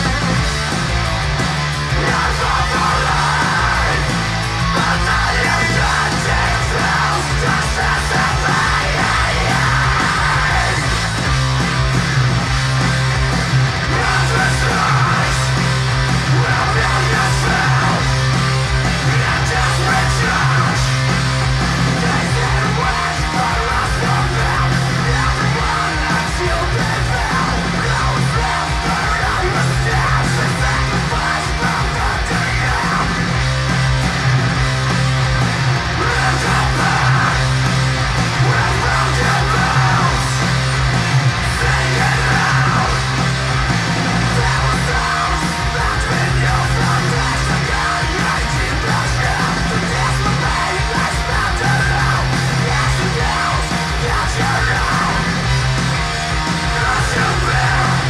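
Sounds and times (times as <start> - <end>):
bass: 0.0 - 58.0
distorted guitars: 0.0 - 58.0
drums: 0.0 - 58.0
shouted vocals: 1.8 - 11.2, 13.5 - 33.4, 35.6 - 58.0.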